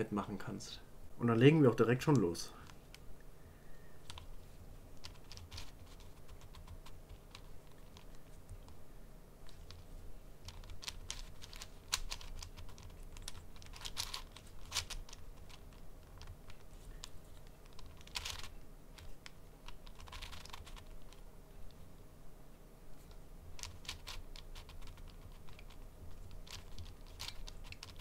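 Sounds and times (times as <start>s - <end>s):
puzzle cube scraping turns: 3.9s - 8.8s, 9.4s - 21.9s, 22.9s - 28.0s
puzzle cube layers clicking: 4.0s - 4.3s, 5.0s - 8.8s, 9.4s - 21.8s, 23.1s - 28.0s.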